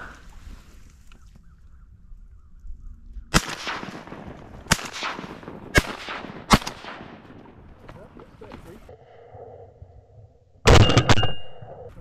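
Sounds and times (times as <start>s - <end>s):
shotgun blasts echoing: 3.3s - 7.6s, 10.7s - 11.6s.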